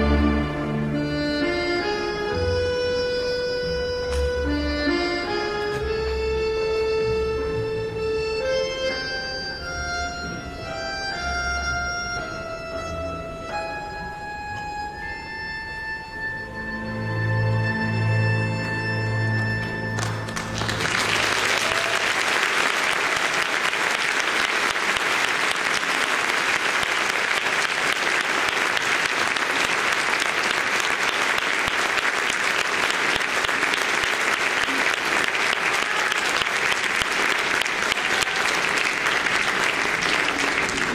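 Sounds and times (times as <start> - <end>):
orchestra chord: 0.0 - 21.4
audience applause: 19.9 - 40.9.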